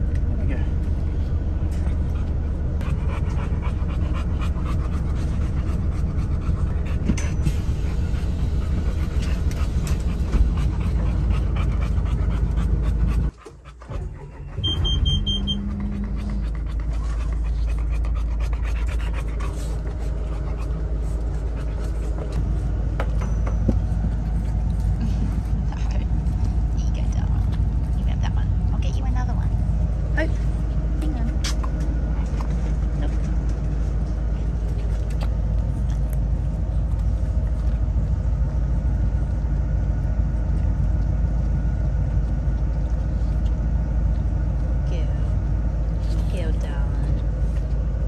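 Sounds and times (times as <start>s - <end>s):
road rumble: 0.0s - 48.0s
dog panting: 0.8s - 38.6s.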